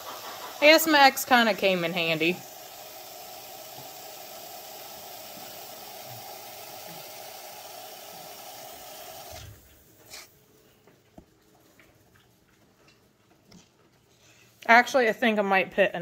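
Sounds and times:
aerosol spray foam hissing: 0.0s - 9.4s.

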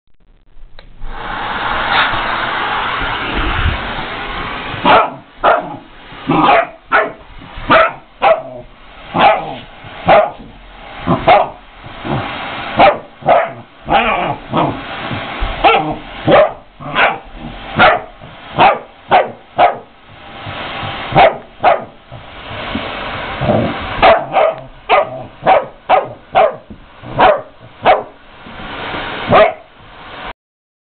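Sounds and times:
vacuum cleaner running: 0.9s - 30.3s
puppy barking: 4.8s - 10.5s, 11.1s - 11.6s, 12.8s - 14.8s, 15.6s - 19.9s, 21.1s - 22.0s, 24.0s - 28.2s, 29.3s - 29.7s.

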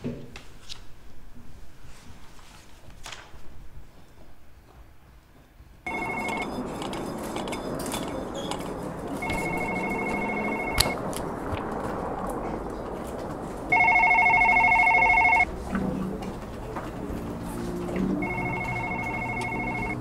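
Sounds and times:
background hum: 0.0s - 20.0s
telephone ringing: 5.9s - 11.0s, 13.7s - 15.5s, 18.2s - 20.0s.

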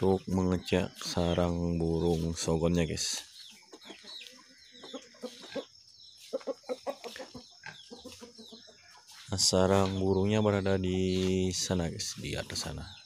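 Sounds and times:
faint high chirping: 0.0s - 13.0s
rooster clucking: 3.5s - 9.2s.

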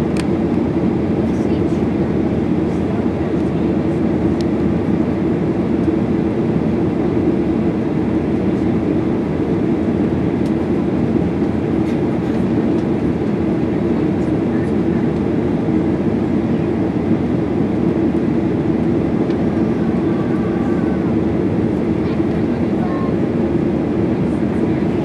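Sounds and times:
jet engine cabin drone: 0.0s - 25.0s.

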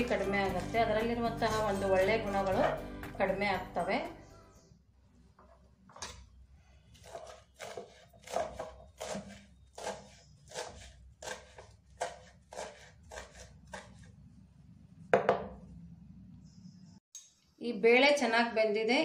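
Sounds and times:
knife chopping on wooden board: 7.0s - 14.1s.

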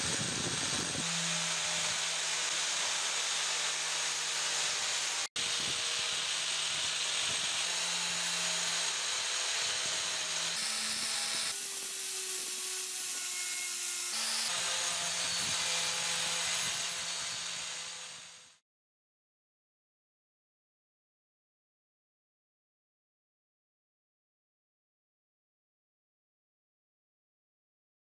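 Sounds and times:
angle grinder motor hum: 0.0s - 18.4s.

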